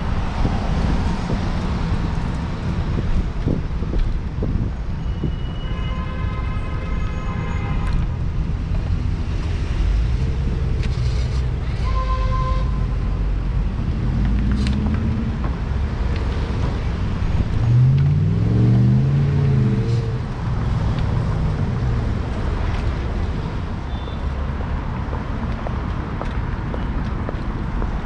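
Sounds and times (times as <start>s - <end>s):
road rumble: 0.0s - 28.0s.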